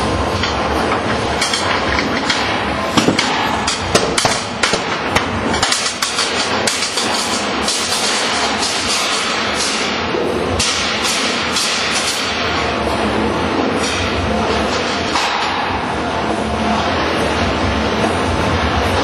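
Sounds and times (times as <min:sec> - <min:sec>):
steady noisy din: 0:00.0 - 0:19.0.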